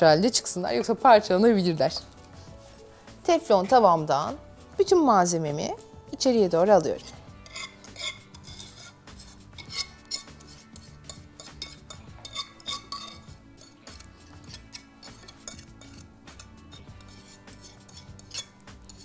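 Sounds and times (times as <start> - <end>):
soft background music: 0.0 - 19.0
whisk scraping and clinking on pan: 6.8 - 19.0.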